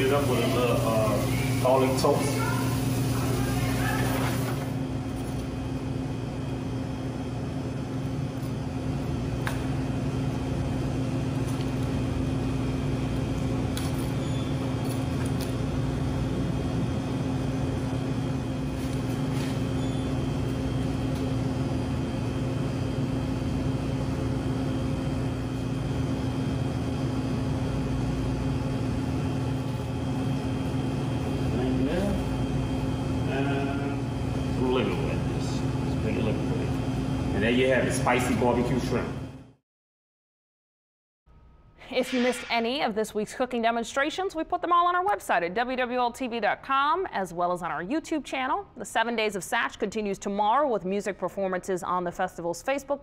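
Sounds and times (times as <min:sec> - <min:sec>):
kitchen exhaust hood hum: 0:00.0 - 0:39.6.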